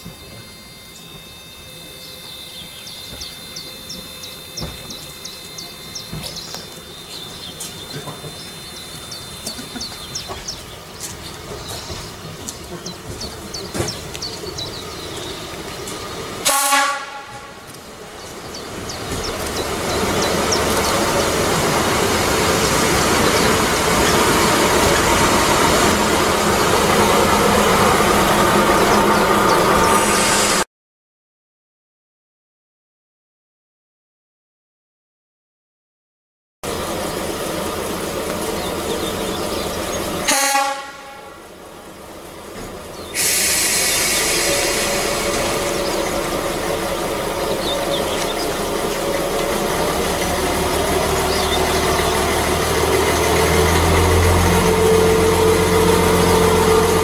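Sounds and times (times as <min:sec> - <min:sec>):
birds chirping: 0:00.0 - 0:30.6, 0:36.7 - 0:57.0
diesel railcar engine and wheels: 0:00.0 - 0:30.7, 0:36.6 - 0:57.0
train horn toot: 0:16.4 - 0:17.8, 0:40.2 - 0:41.6, 0:53.6 - 0:57.0.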